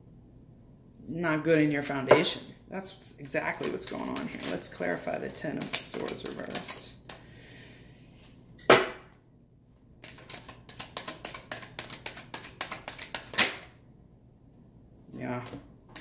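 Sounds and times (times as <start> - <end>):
cards being shuffled: 3.6 - 7.2, 10.0 - 13.6.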